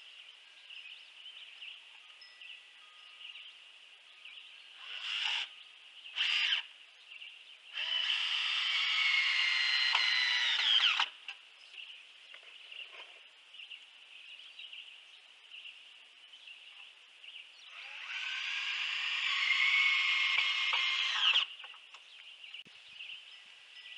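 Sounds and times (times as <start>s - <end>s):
power drill whirring: 4.8s - 5.5s, 6.2s - 6.7s, 7.8s - 11.2s, 17.7s - 21.6s.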